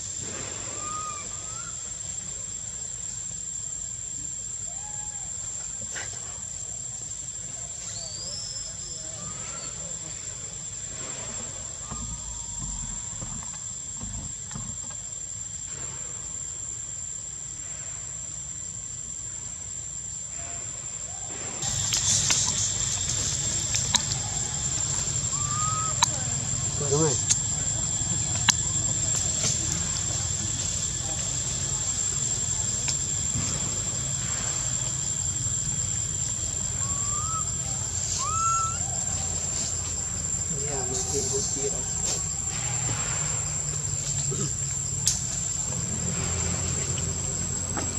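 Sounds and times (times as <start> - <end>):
high-pitched insect drone: 0.0 - 47.9
monkey coo calls: 0.7 - 1.8, 21.6 - 27.4, 36.4 - 39.6
faint clicks: 26.0 - 26.2.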